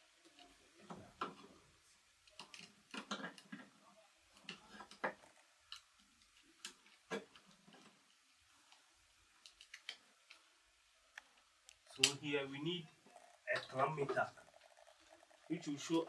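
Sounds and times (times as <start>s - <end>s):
wires pushed into terminals: 4.3s - 12.2s.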